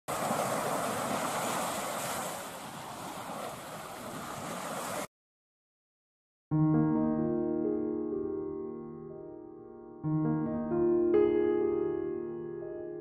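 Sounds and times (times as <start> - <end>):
ocean surf rushing: 0.1 - 5.1.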